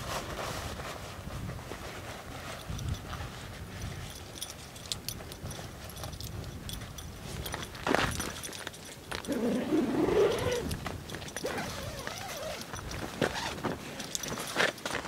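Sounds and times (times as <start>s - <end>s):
nylon fabric rustling: 7.4s - 15.0s
tent zipper pulled open: 9.2s - 15.0s.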